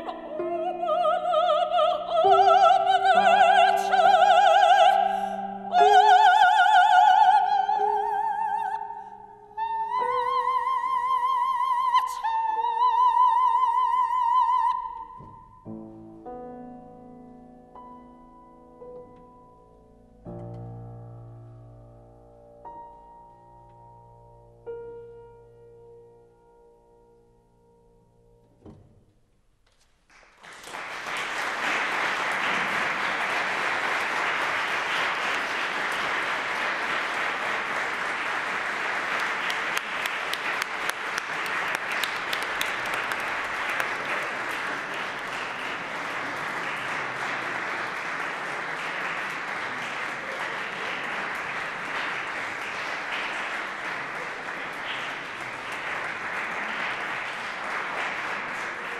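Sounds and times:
audience applauding: 30.1s - 58.9s.

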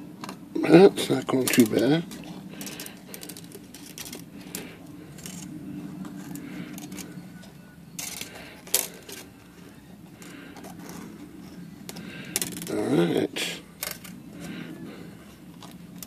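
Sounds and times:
faint steady hum: 0.0s - 16.0s
metal spring clicks and scrapes: 8.0s - 9.3s.

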